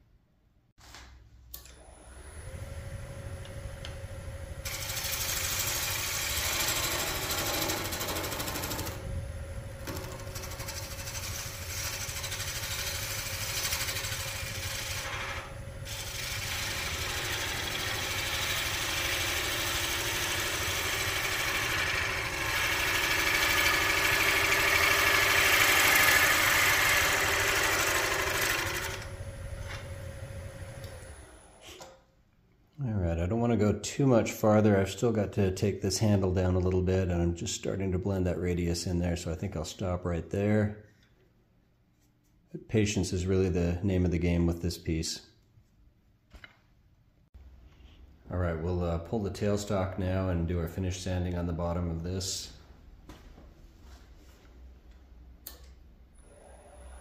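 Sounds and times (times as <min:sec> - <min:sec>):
wood lathe motor hum: 0:01.7 - 0:31.6, 0:56.2 - 0:57.0
gouge cutting wood with hiss: 0:10.4 - 0:28.9.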